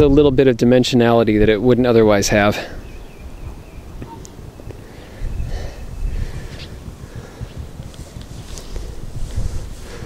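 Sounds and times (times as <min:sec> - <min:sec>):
wind rumbling on microphone: 0:01.2 - 0:10.0
soft rustle: 0:06.2 - 0:10.0.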